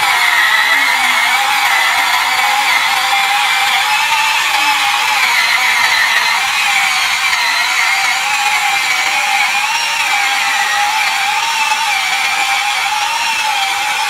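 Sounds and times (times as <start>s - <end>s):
toy electric motor whining: 0.0s - 14.0s.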